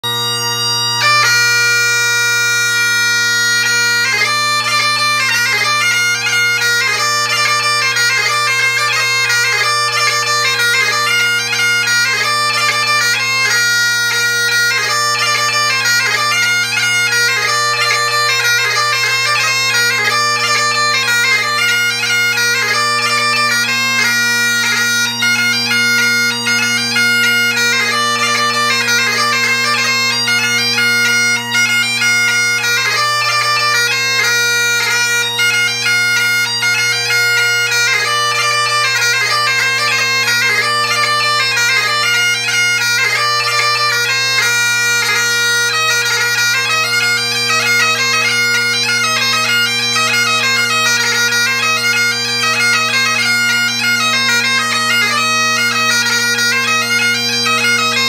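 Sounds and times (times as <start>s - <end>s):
bagpipe chanter dance tune: 0.0s - 58.0s
bagpipe drones: 0.0s - 58.0s.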